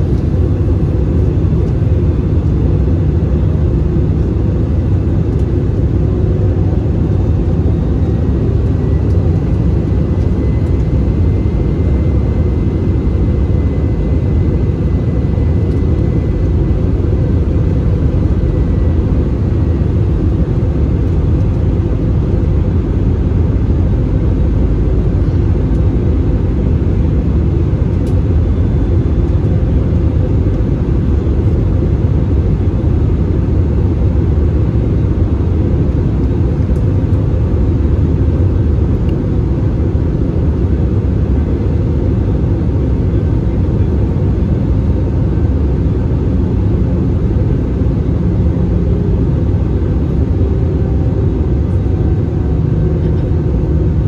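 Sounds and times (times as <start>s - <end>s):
airplane cabin rumble: 0.0s - 54.0s.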